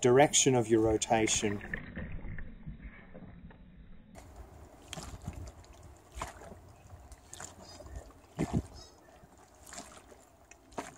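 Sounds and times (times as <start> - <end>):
liquid sloshing in plastic tank: 4.2 - 10.9.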